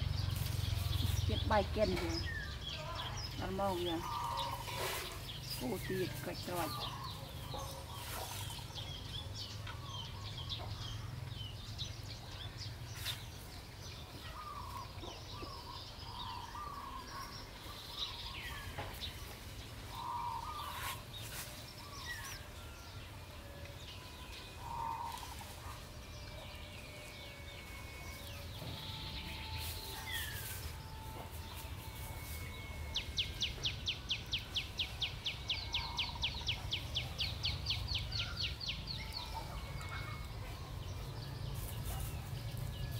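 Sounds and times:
small birds chirping: 0:00.0 - 0:42.9.

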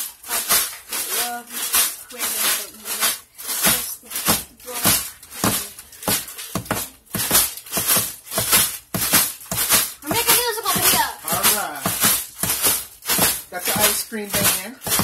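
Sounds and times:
plastic bag of ice shaken: 0:00.0 - 0:15.0.

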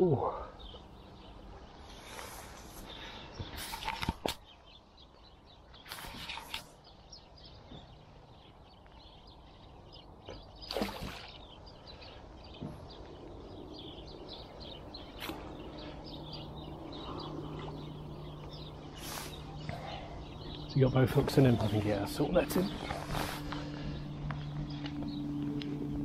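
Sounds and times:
birds chirping: 0:00.0 - 0:26.0
low steady hum: 0:10.7 - 0:26.0.

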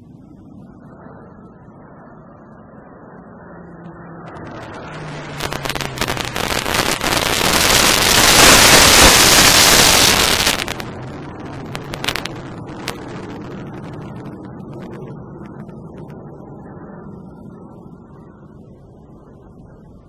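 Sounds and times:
aircraft engine tone dropping: 0:00.0 - 0:19.8
jet roar: 0:00.0 - 0:20.0
sharp crackles: 0:04.2 - 0:16.2.

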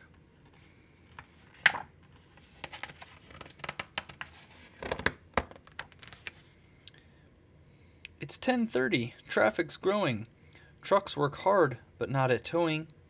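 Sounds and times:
book pages rustling: 0:00.5 - 0:06.5.

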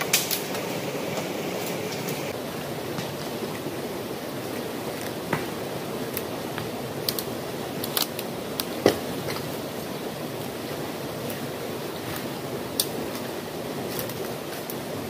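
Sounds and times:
dry branches snapping: 0:00.0 - 0:02.3, 0:06.1 - 0:09.6, 0:12.1 - 0:14.8.

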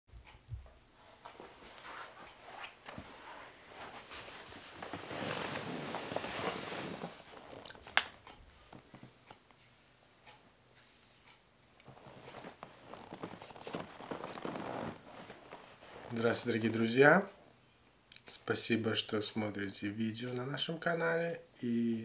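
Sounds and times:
clothing rustling and shuffling: 0:00.8 - 0:10.0, 0:11.8 - 0:17.0.

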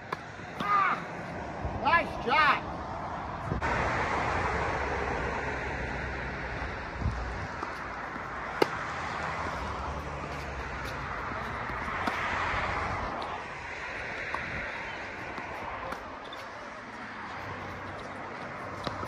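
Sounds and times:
wind noise on microphone: 0:03.2 - 0:08.0, 0:11.6 - 0:15.6
tennis ball struck by racket: 0:07.6 - 0:12.3.

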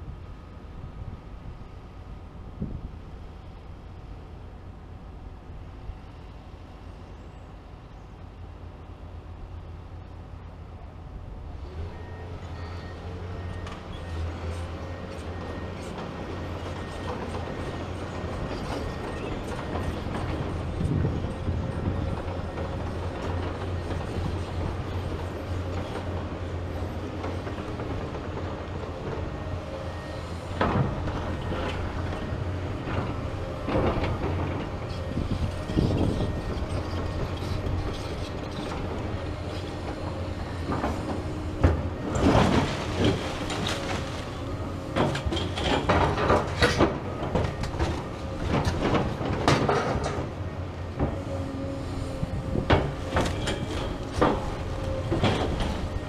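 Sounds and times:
excavator diesel engines running: 0:00.0 - 0:56.0
metal clanking on rubble: 0:40.6 - 0:50.4.

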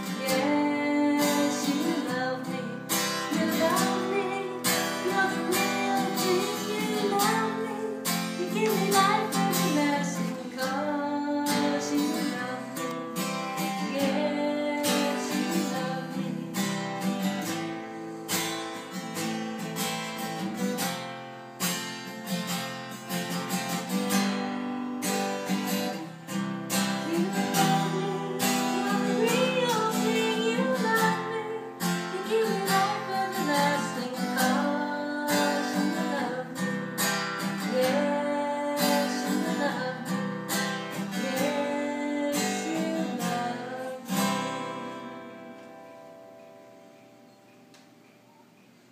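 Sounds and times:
person singing: 0:00.0 - 0:17.2, 0:25.9 - 0:36.8, 0:37.4 - 0:45.5
acoustic guitar strumming: 0:00.0 - 0:48.8.

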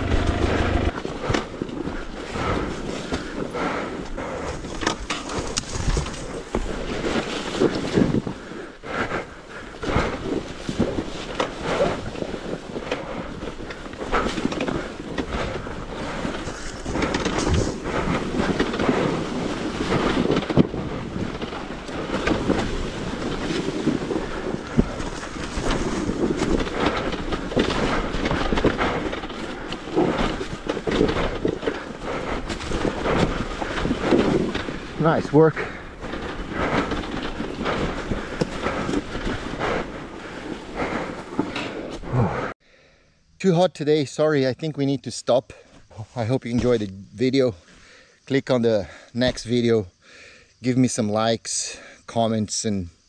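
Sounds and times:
dirt bike engine rumble: 0:00.0 - 0:07.0, 0:07.7 - 0:42.5
wind buffeting microphone: 0:07.7 - 0:42.5.

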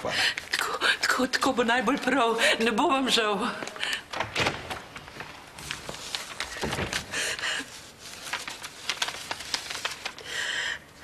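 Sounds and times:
paper envelope rustling: 0:04.0 - 0:10.4.

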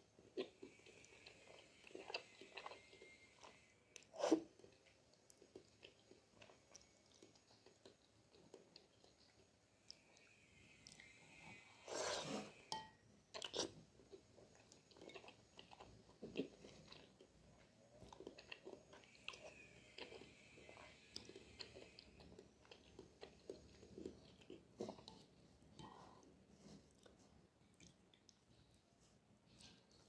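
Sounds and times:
wet chewing: 0:00.2 - 0:11.2, 0:13.3 - 0:28.8
person slurping noodles: 0:11.8 - 0:12.6.

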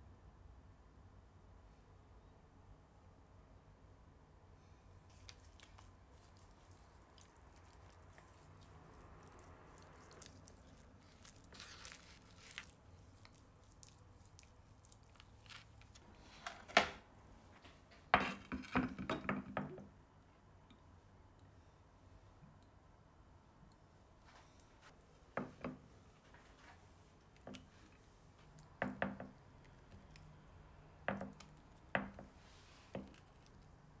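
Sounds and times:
hands squishing raw chicken: 0:05.1 - 0:16.1, 0:26.8 - 0:33.9.

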